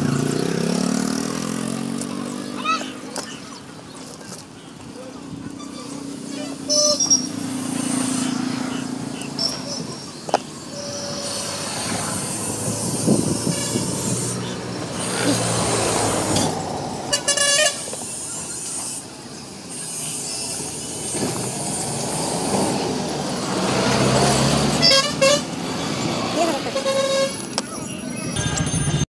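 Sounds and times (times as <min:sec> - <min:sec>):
street traffic passing: 0:00.0 - 0:29.0
vehicle horn honking: 0:05.6 - 0:07.3, 0:10.7 - 0:12.3, 0:12.9 - 0:14.2, 0:17.1 - 0:18.0, 0:24.7 - 0:25.6, 0:26.4 - 0:27.5.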